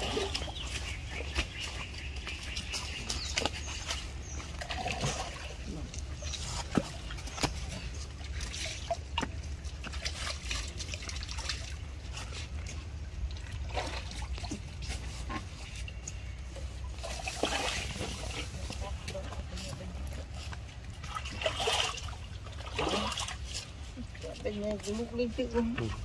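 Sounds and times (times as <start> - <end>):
water dripping: 0.0 - 14.9
pond water splashing: 0.0 - 26.0.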